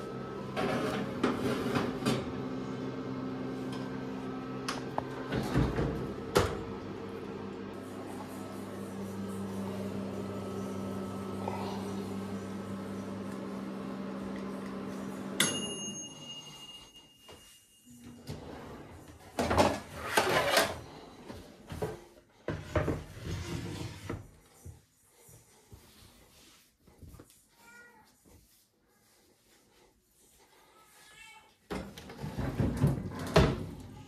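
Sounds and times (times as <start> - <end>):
mini oven humming: 0.0 - 21.9
timer bell ding: 15.4 - 18.2.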